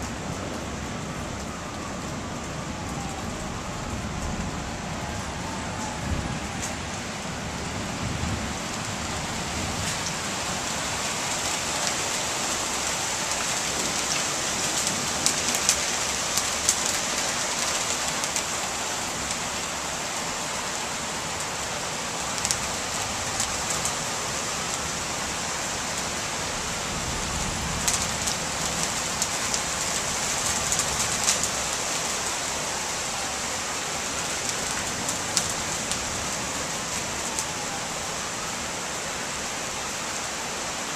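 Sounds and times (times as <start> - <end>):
raindrops tapping nearby: 0.0 - 7.0, 8.2 - 20.3, 22.2 - 25.0, 25.9 - 32.4, 34.2 - 37.8.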